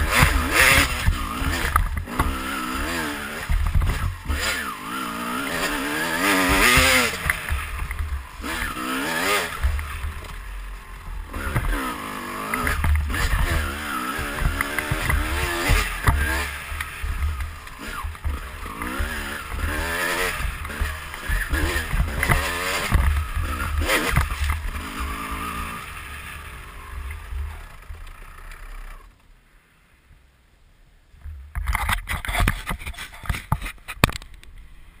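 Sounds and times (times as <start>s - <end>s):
dirt bike engine revving: 0.0s - 29.1s
rubbing on microphone: 31.7s - 34.0s.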